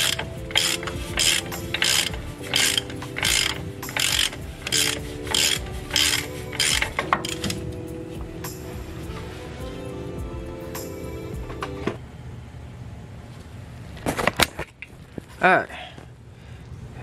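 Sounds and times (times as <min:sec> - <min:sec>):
ratchet wrench clicking: 0:00.0 - 0:07.6.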